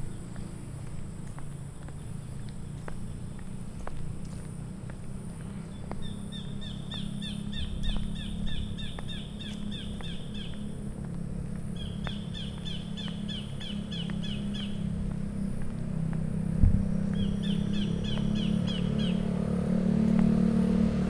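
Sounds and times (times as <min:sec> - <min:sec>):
steady low hum: 0:00.0 - 0:21.0
bird chirping rapidly: 0:05.7 - 0:10.6, 0:11.7 - 0:14.9, 0:17.1 - 0:19.3.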